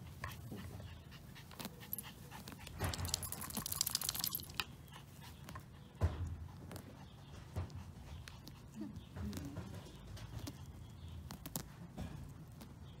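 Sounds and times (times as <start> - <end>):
dog panting: 0.0 - 9.2.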